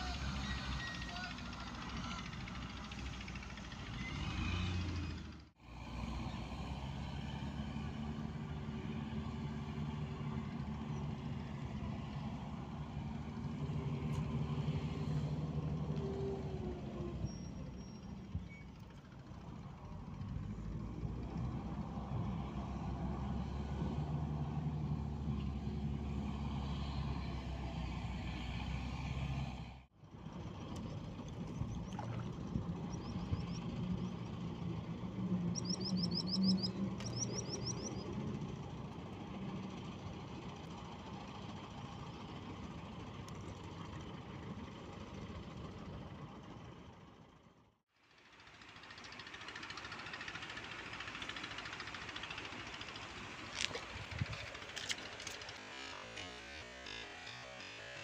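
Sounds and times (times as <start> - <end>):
heavy machine engine revving: 1.8 - 10.2, 49.5 - 58.0.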